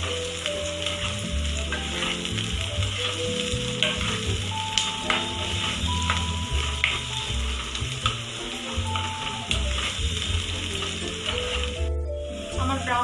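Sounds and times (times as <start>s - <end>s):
background music: 0.0s - 13.0s
onions sizzling in oil: 0.0s - 13.0s
utensil clicking against pan: 0.8s - 8.3s.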